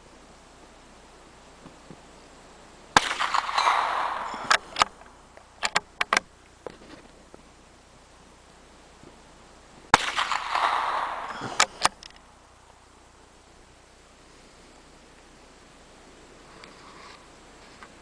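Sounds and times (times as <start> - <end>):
rifle shots with echo: 3.0 - 5.7, 9.9 - 12.7
rifle bolt metallic clicks: 3.2 - 6.3.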